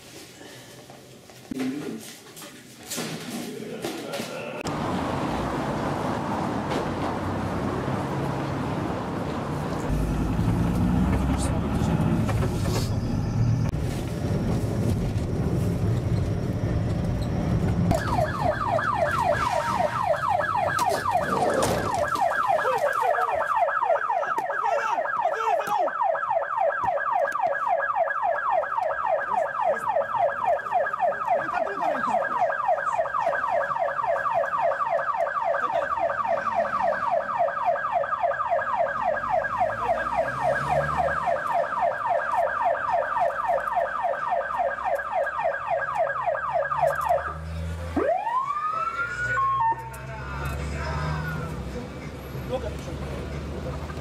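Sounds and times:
car driving rumble: 4.6 - 22.6, 48.8 - 54.0
electronic siren yelping: 16.3 - 50.5.

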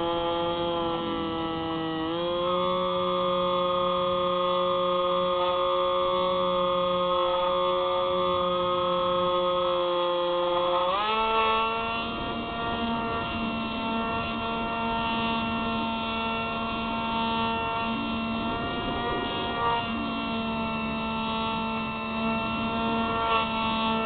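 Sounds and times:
electric motor and propeller whine: 0.0 - 24.0.

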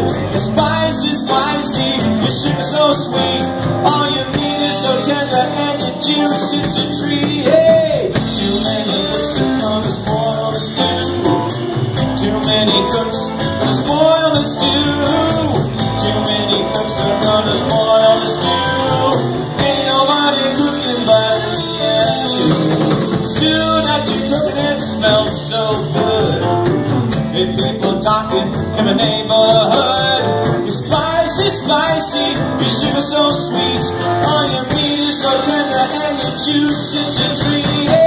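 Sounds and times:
drum kit: 0.0 - 38.0
electric bass: 0.0 - 38.0
electric guitars: 0.0 - 38.0.

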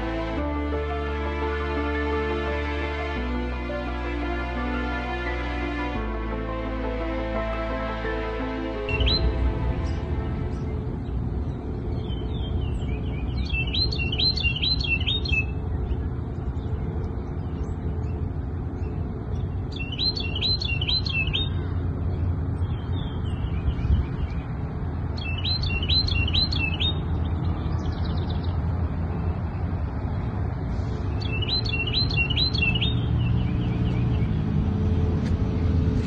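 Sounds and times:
steady low rumble: 0.0 - 14.3, 15.1 - 26.0
songbird singing high notes: 8.9 - 11.2, 11.9 - 15.6, 19.7 - 21.7, 25.2 - 28.6, 31.1 - 34.2
faint birdsong: 8.9 - 35.7.

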